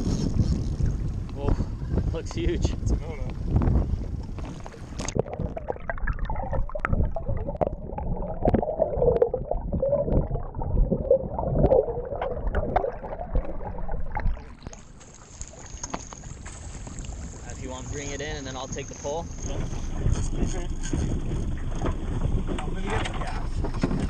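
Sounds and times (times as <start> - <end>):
wind: 0.0 - 24.0
muffled underwater gurgling: 2.8 - 15.0
underwater knocks: 3.5 - 15.0, 19.6 - 24.0.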